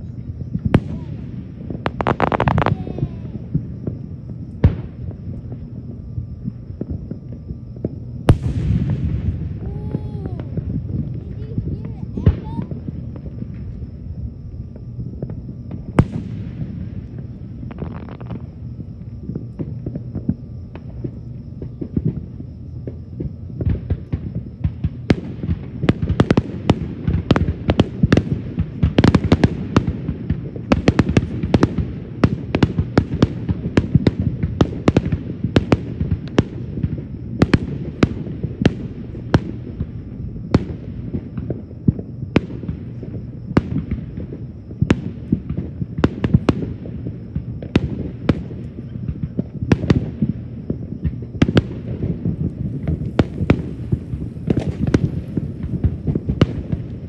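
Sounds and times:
low rumble: 0:00.0 - 0:23.6
fireworks banging: 0:00.2 - 0:05.7, 0:06.4 - 0:13.8, 0:15.2 - 0:18.6, 0:40.6 - 0:57.0.

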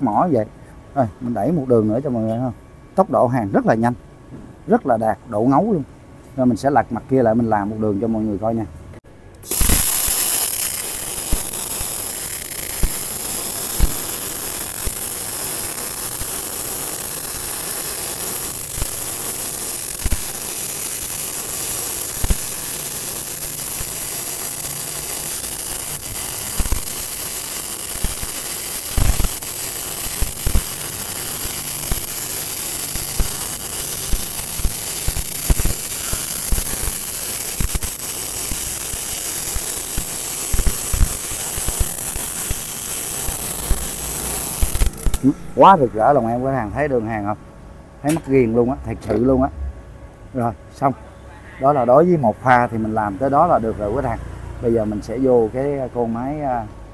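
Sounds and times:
welding arc crackling: 0:09.3 - 0:47.4, 0:51.6 - 0:56.7.

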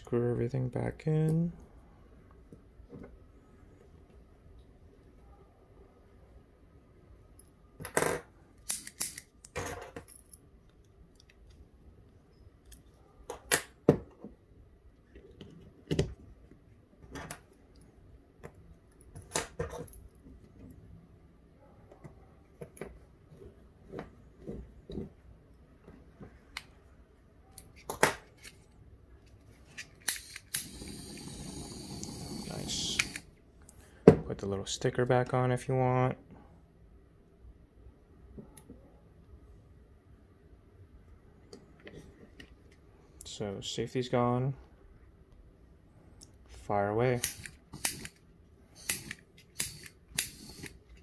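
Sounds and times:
torch flame hissing: 0:30.2 - 0:33.3, 0:47.2 - 0:50.8.

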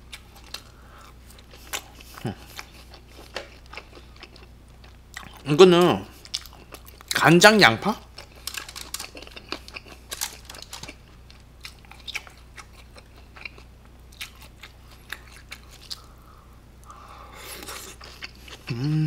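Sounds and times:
close chewing with crunches: 0:00.0 - 0:05.5, 0:06.1 - 0:07.2, 0:08.0 - 0:16.2, 0:17.4 - 0:19.0
breath: 0:00.7 - 0:01.2, 0:16.0 - 0:17.6
person humming: 0:18.7 - 0:19.0.

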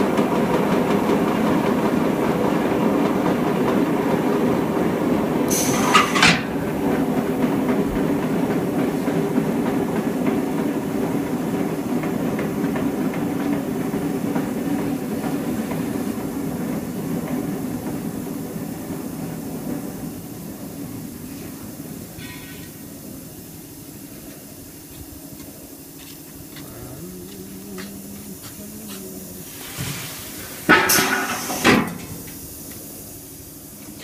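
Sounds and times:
motor hum: 0:24.2 - 0:29.4.

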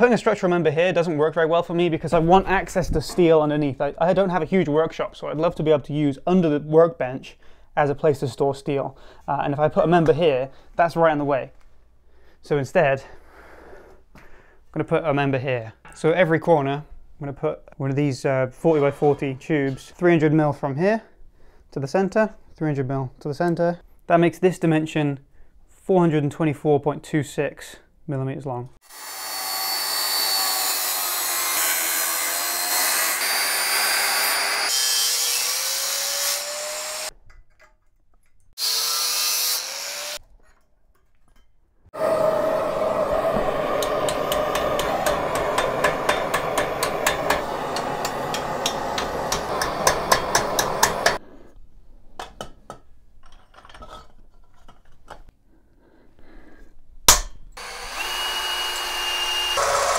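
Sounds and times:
angle grinder cutting steel: 0:28.8 - 0:37.1, 0:38.6 - 0:40.2, 0:42.0 - 0:51.2, 0:57.6 - 0:59.9
gas torch burning: 0:42.0 - 0:51.2
hammer striking metal tube: 0:43.8 - 0:51.2, 0:57.1 - 0:57.6.

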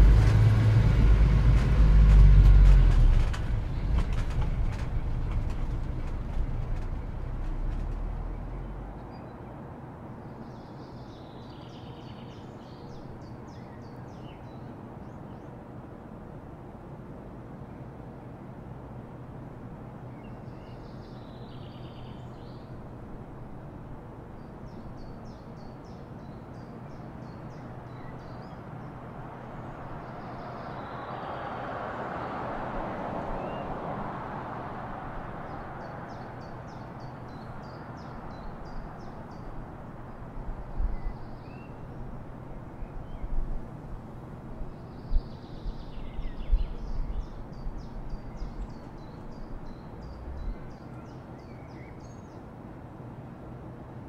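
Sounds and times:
vehicle passing: 0:00.0 - 0:09.1, 0:28.8 - 0:39.1.

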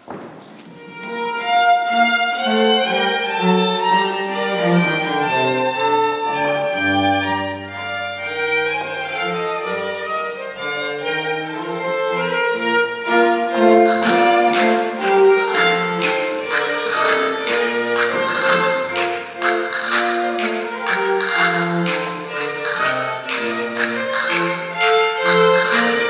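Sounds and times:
bowed strings playing dance tune: 0:00.8 - 0:26.0
sharp percussive beats: 0:13.8 - 0:26.0.

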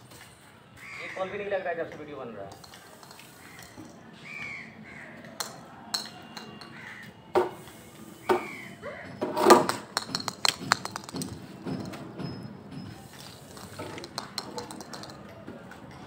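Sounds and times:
crows cawing: 0:00.8 - 0:01.5, 0:03.4 - 0:05.6, 0:06.2 - 0:07.2, 0:08.3 - 0:09.2
sharp clicks and knocks: 0:13.2 - 0:15.2.

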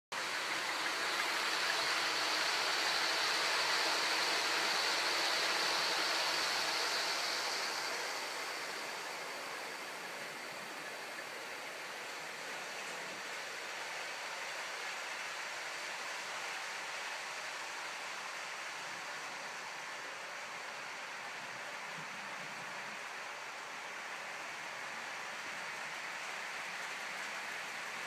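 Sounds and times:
faint high whine: 0:00.2 - 0:28.0
model train whirring rumble: 0:00.2 - 0:28.0.

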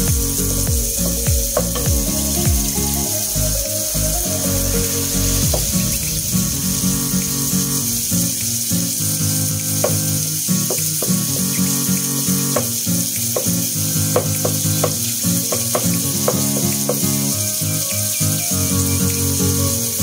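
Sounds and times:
background music with steady beat: 0:00.0 - 0:09.0
steady hiss: 0:00.0 - 0:20.0.

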